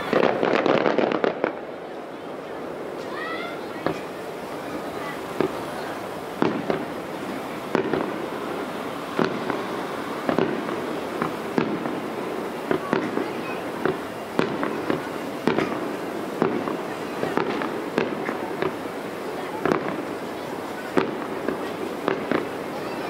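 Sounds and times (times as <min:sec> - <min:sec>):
firework shells bursting: 0:00.0 - 0:01.8, 0:02.8 - 0:20.2.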